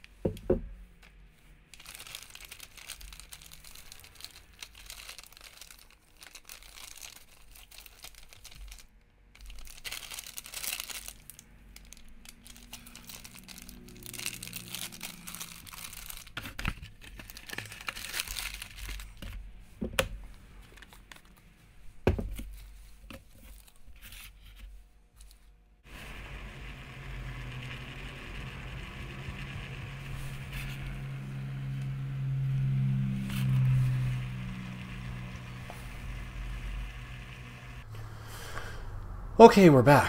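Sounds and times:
plastic pouch crinkling: 1.7s - 19.4s.

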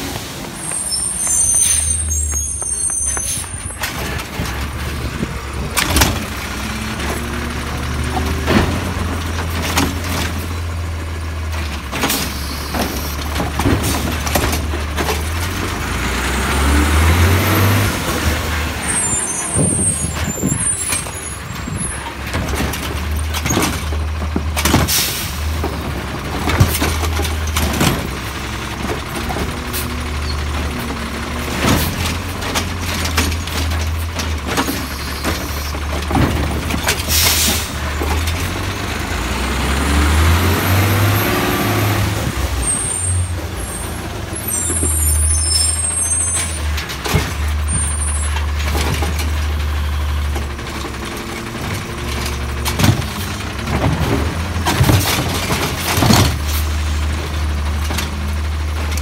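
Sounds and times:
garbage truck engine revving: 0.0s - 59.0s
air brakes hissing: 24.8s - 25.6s, 37.0s - 37.8s.

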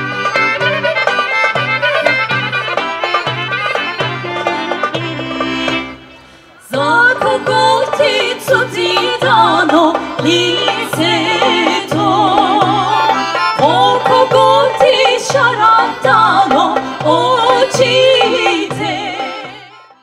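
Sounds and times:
accordion: 0.0s - 20.0s
women singing with vibrato: 6.6s - 19.9s.

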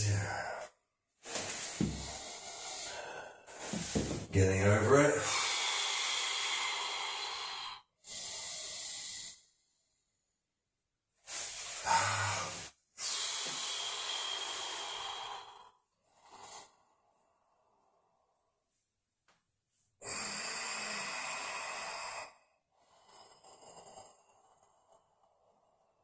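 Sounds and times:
man breathing heavily: 0.1s - 4.3s, 5.0s - 9.5s, 11.3s - 18.3s, 20.0s - 25.7s
man grunting: 11.8s - 12.6s.

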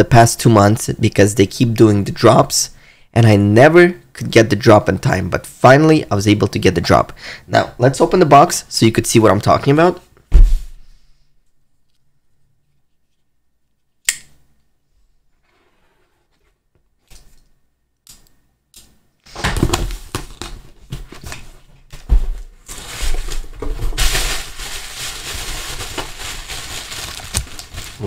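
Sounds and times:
sharp click: 14.0s - 14.4s.

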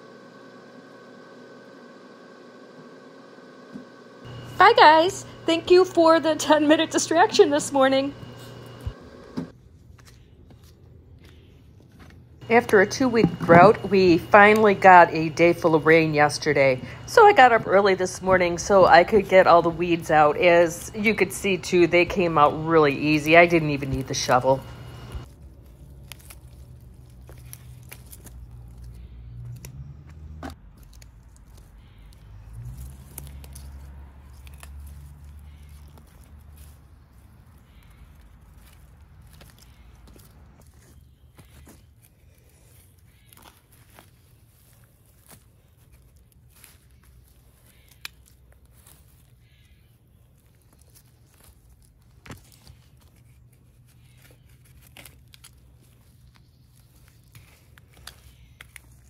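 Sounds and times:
weeds pulled from wet soil: 9.6s - 30.0s, 30.6s - 59.0s
roots tearing and rustling: 18.0s - 59.0s
roots snapping: 23.9s - 59.0s.

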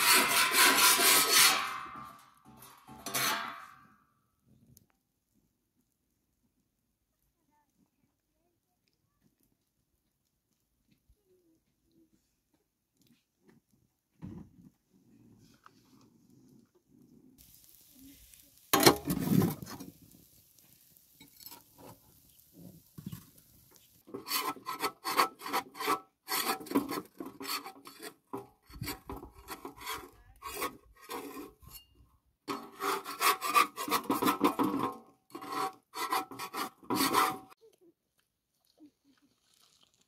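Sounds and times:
rubbing or scraping strokes: 0.0s - 3.9s, 17.4s - 31.8s, 32.5s - 37.6s.

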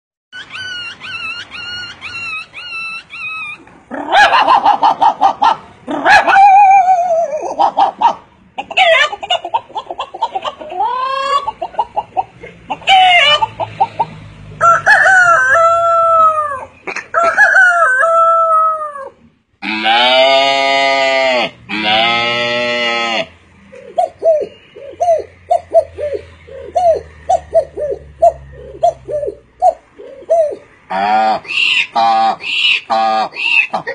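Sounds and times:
man imitating animal calls: 18.4s - 23.3s, 24.0s - 33.9s.

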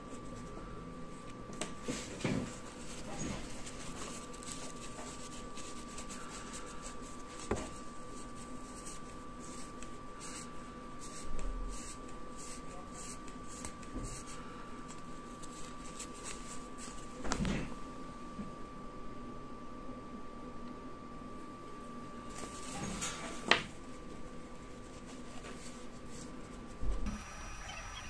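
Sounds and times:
faint steady hum: 0.0s - 28.0s
tissue paper rustling: 1.7s - 17.3s, 22.3s - 26.8s.

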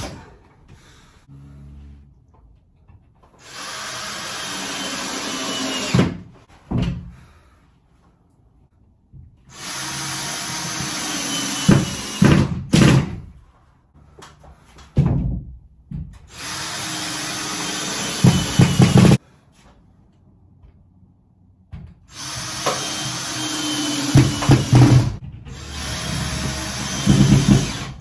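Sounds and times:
cordless drill driving screws: 3.4s - 6.1s, 9.5s - 12.4s, 16.3s - 19.2s, 22.1s - 28.0s.

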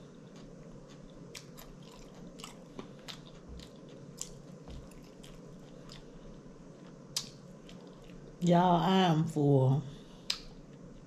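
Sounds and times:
person chewing food: 0.0s - 8.4s
wet lip-smacking clicks: 10.3s - 10.5s.

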